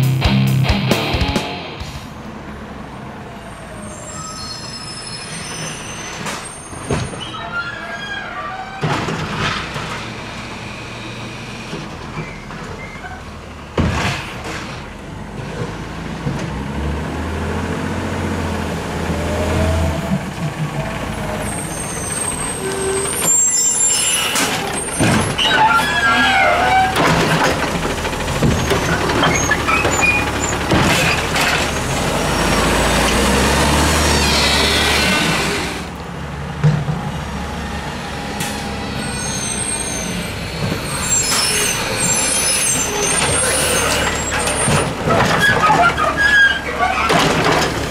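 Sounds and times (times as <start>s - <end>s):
garbage truck engine running: 17.9s - 38.9s
mechanical arm clanking and knocking: 24.3s - 31.8s, 47.0s - 47.9s
hydraulic whine: 33.7s - 36.0s.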